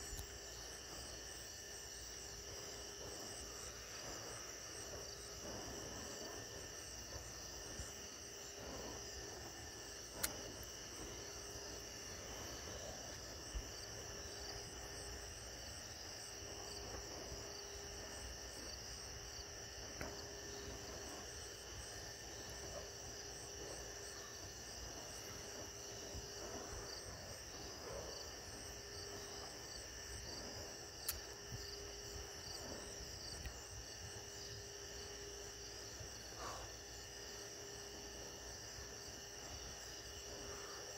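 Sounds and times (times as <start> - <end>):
crickets chirring: 0.0 - 40.9
low outdoor rumble: 0.0 - 40.9.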